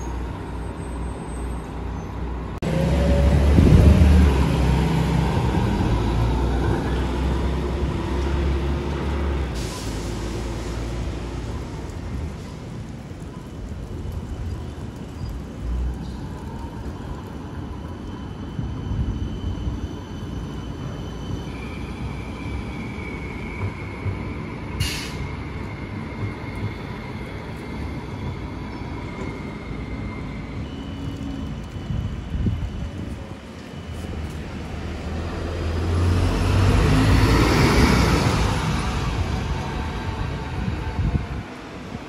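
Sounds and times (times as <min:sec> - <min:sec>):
tram rumbling past: 0:00.0 - 0:42.0
high tram whine: 0:02.6 - 0:11.3
brief sharp hiss: 0:24.8 - 0:25.3.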